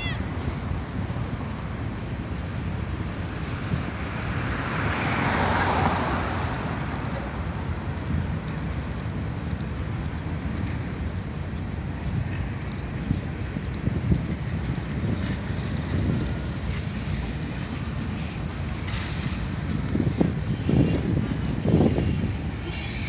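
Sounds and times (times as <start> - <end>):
freight train crossing bridge: 0.0 - 23.0
road traffic rumble: 0.0 - 23.0
car passing close: 3.6 - 7.9.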